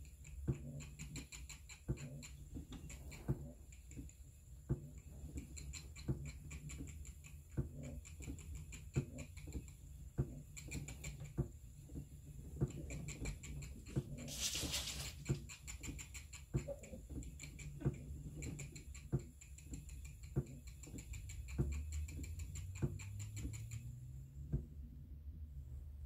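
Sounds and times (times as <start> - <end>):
spinning wheel clicking: 0.0 - 11.4, 12.3 - 24.4
light ticks: 0.0 - 11.5, 15.2 - 24.6
rustling hiss: 14.2 - 15.4.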